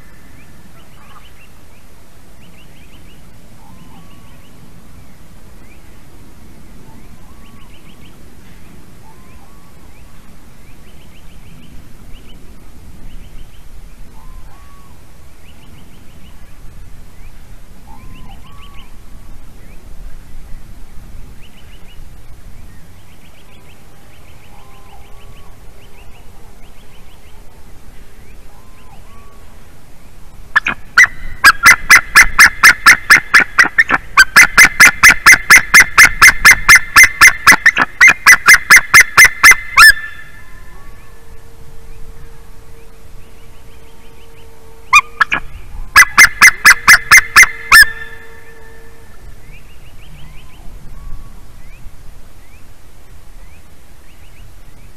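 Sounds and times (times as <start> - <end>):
faint small bird calls: 2.4 - 4.6, 6.8 - 12.4, 13.1 - 16.6, 17.2 - 19.0, 22.7 - 29.6
eagle calling rapidly: 30.6 - 40.5, 44.9 - 48.4.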